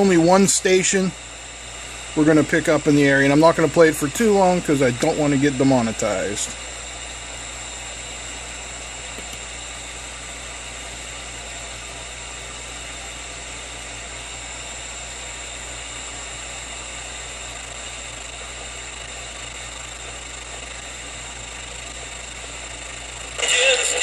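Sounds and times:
radio static hiss: 0.0 - 7.2, 17.2 - 24.0.

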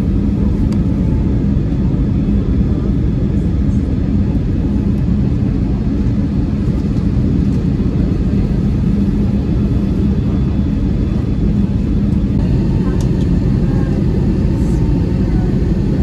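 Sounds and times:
airliner cabin engine rumble: 0.0 - 16.0
even hum: 0.0 - 16.0.

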